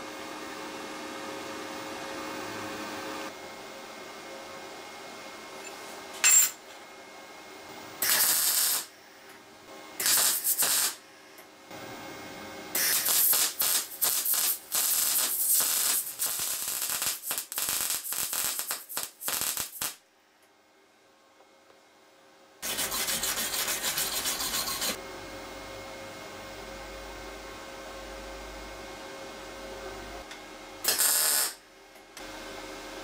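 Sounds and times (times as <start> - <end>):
welding arc crackling: 8.0 - 8.9, 10.0 - 11.0, 12.8 - 20.0, 30.8 - 31.6.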